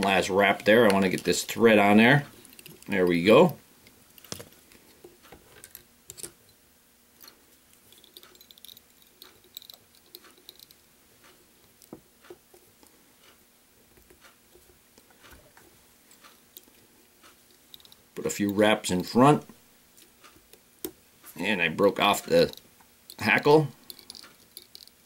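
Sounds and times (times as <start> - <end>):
small clicks and taps of tools: 3.8 - 6.4, 7.2 - 18.6, 22.2 - 25.0.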